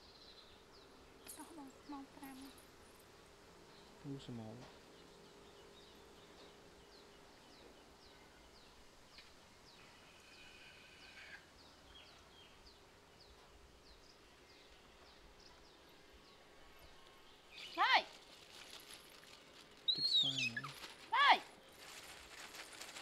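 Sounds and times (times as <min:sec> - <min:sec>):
small bird chirping: 0:04.9 - 0:21.0.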